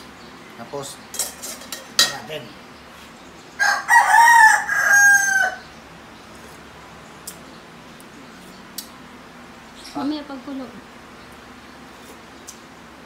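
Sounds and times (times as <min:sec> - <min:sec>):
rooster crowing: 0:03.6 - 0:05.7.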